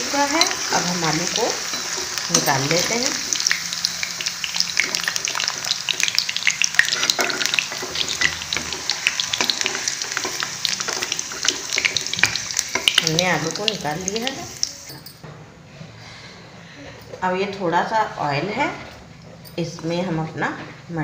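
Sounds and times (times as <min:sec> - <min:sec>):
oil sizzling and crackling: 0:00.0 - 0:15.1.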